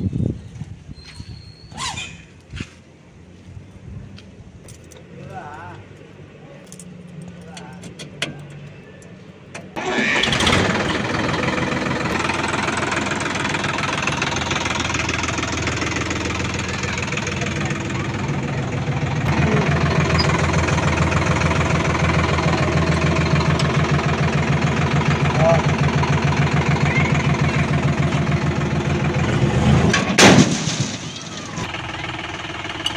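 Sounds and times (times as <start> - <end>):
tractor engine running: 5.9 - 32.9
diesel tractor engine starting: 7.8 - 32.9.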